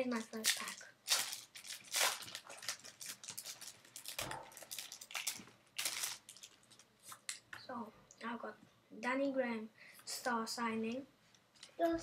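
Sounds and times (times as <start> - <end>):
foil wrapper crinkling and tearing: 0.0 - 7.2.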